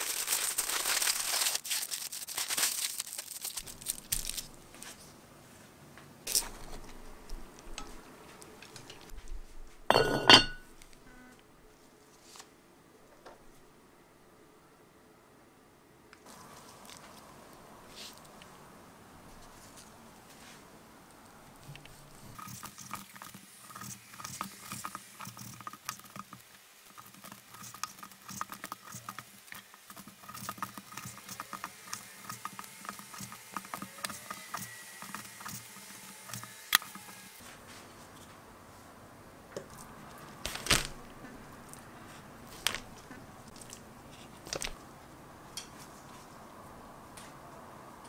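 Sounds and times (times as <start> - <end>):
meat squishing: 0.0 - 4.6, 39.7 - 44.8.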